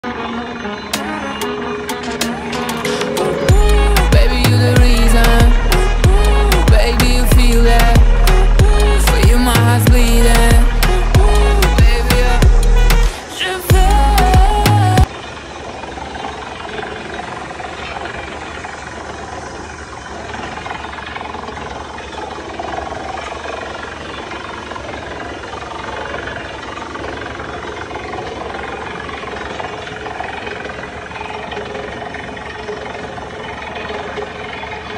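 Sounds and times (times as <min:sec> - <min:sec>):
drilling rig running: 0:00.0 - 0:34.9.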